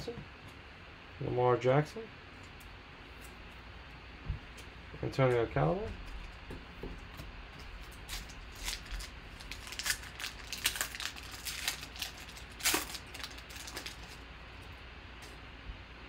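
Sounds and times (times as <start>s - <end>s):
foil wrapper crinkling: 7.6s - 14.8s.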